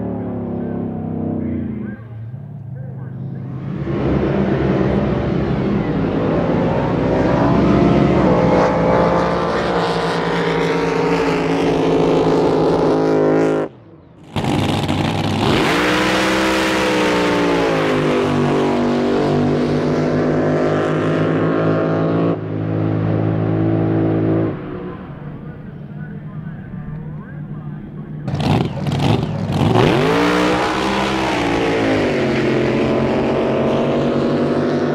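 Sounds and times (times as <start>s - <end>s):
drag boat engines running hard: 14.2s - 21.2s, 28.2s - 34.9s.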